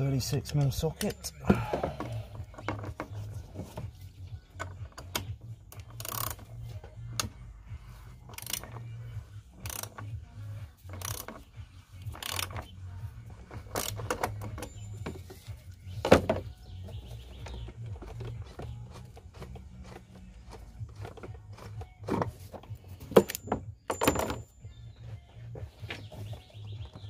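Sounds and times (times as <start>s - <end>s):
ratchet wrench clicking: 4.6s - 6.5s, 8.3s - 8.9s, 9.6s - 10.2s, 10.8s - 11.4s, 12.0s - 12.7s, 13.6s - 14.7s.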